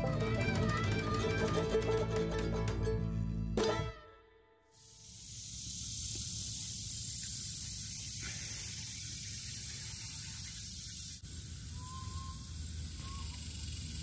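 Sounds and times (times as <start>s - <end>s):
high-pitched insect chorus: 4.8s - 14.0s.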